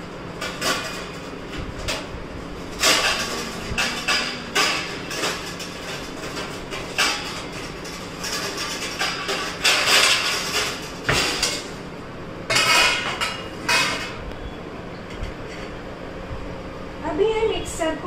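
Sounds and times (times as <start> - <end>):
steel plates and utensils clattering: 0.3 - 11.8, 12.5 - 14.2.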